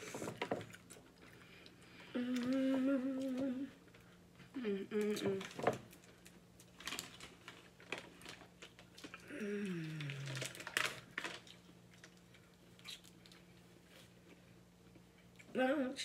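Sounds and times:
person humming mm: 2.0 - 3.8, 4.5 - 5.4, 9.2 - 10.5
shellfish shells cracking: 5.4 - 13.5.

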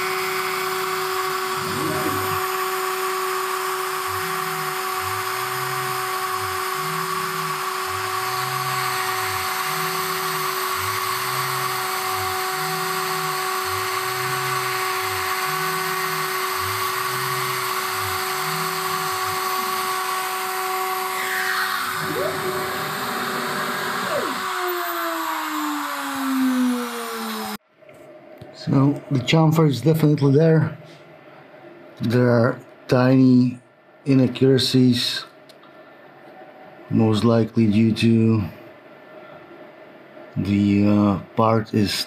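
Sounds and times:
spindle motor high whine: 0.0 - 27.6
low hum rising and falling: 1.4 - 2.8, 21.3 - 31.9.

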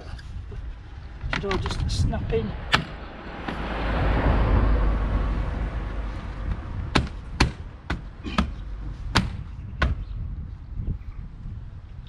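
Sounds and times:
vehicle driving past: 2.4 - 7.8.

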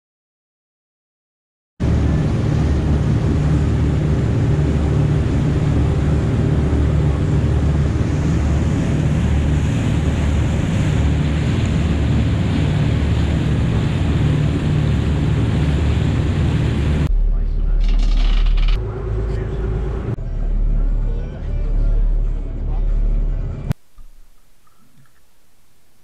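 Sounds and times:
water rushing along hull: 1.8 - 17.1, 18.4 - 25.4
wind on microphone: 1.8 - 17.1
boat engine drone: 1.8 - 26.0.

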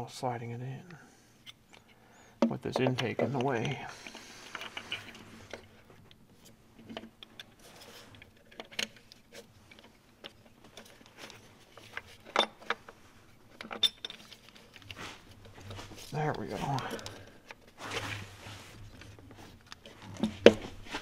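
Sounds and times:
small metallic clicks and clinks: 13.6 - 14.8.

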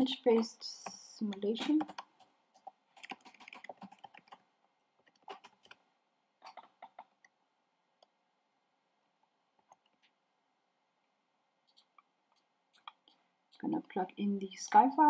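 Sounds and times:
faint keyboard typing: 0.0 - 7.4, 9.2 - 10.2, 11.6 - 13.9.

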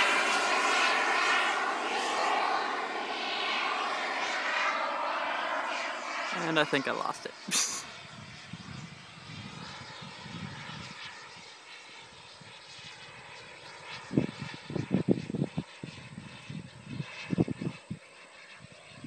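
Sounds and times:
distant jet turbine whine: 0.0 - 19.0
wind buffeting microphone: 7.5 - 11.5, 14.0 - 19.0.

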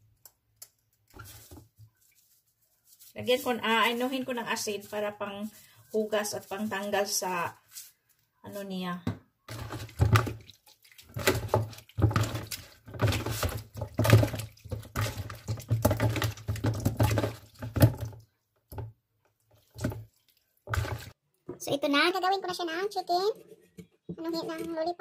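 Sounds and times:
water sloshing and splashing: 1.1 - 5.0, 9.5 - 21.2
hands washing chicken in water: 9.5 - 18.4, 19.3 - 21.2.

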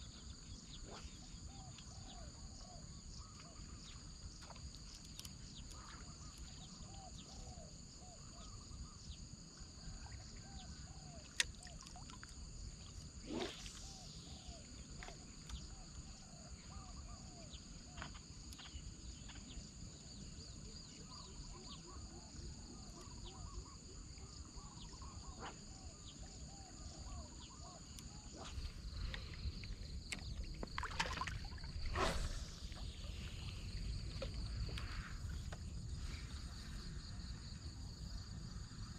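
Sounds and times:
insect chirping calls: 0.0 - 38.9
insects trilling: 0.0 - 38.9.

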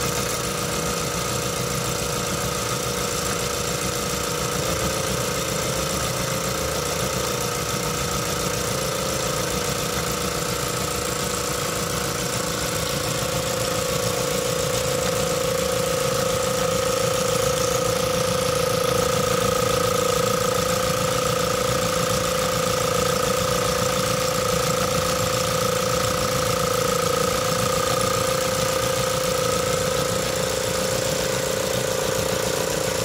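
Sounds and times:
model steam engine rattling: 0.0 - 33.0
steady whine: 0.0 - 33.0.

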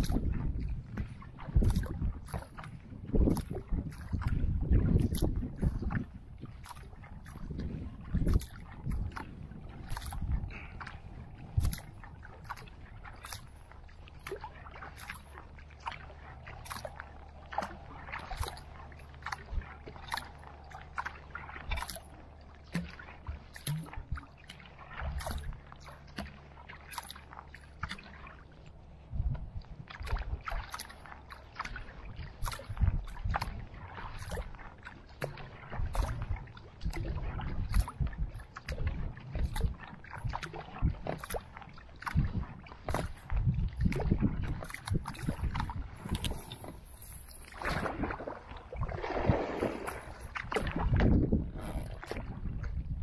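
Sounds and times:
paddle splashing and dripping: 0.0 - 53.0
wind rumble on microphone: 0.0 - 53.0.

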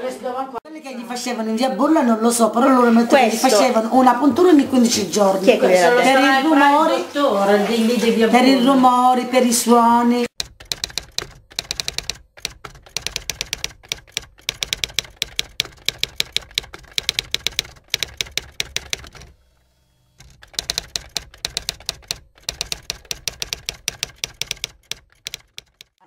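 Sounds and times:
typewriter key clicks: 10.4 - 19.3, 20.2 - 26.0.

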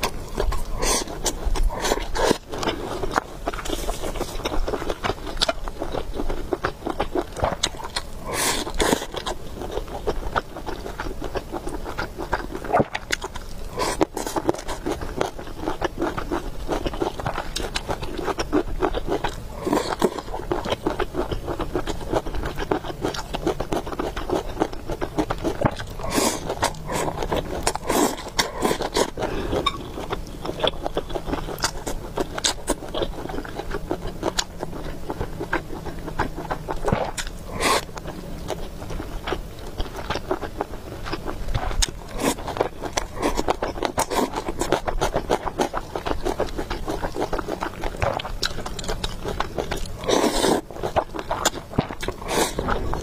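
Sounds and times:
person chewing food: 0.0 - 53.0.

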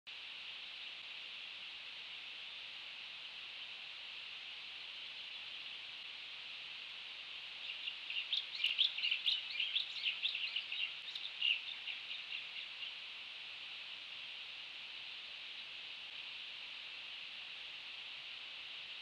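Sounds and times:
steady hiss: 0.1 - 19.0
bird chirping: 7.6 - 13.0.

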